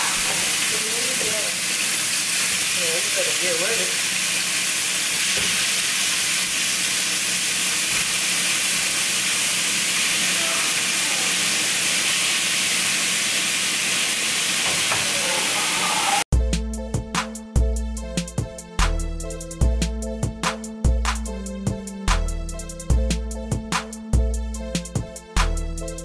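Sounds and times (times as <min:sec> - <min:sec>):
chicken sizzling in hot oil: 0:00.0 - 0:16.3
music with heavy beat: 0:16.3 - 0:26.0.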